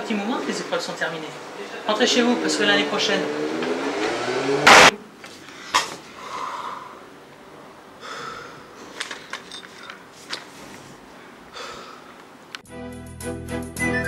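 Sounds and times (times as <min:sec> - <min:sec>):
soft breathy sounds: 0:05.4 - 0:07.1.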